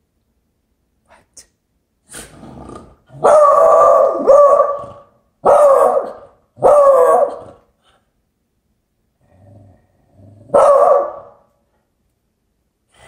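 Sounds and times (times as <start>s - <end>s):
dog barking: 3.2s - 7.6s, 10.5s - 11.5s.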